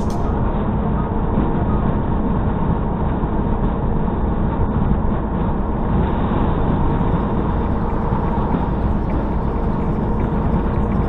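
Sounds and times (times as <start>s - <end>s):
diesel engine drone: 0.0s - 2.3s, 5.2s - 11.0s
faint hum: 0.0s - 11.0s.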